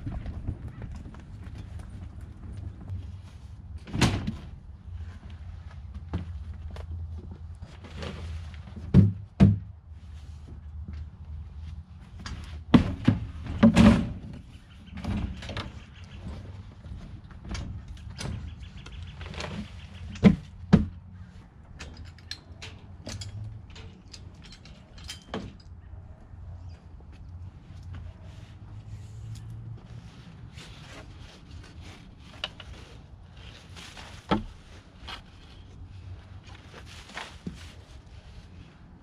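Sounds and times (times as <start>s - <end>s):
plastic tubs knocking and thudding: 8.8s - 9.8s, 12.7s - 14.4s.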